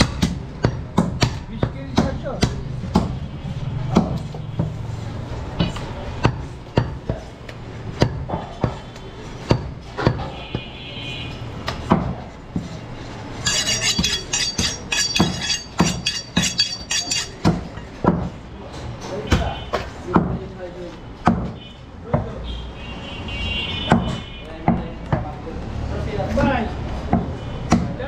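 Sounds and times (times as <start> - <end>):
metallic clinking and scraping: 13.4 - 17.5.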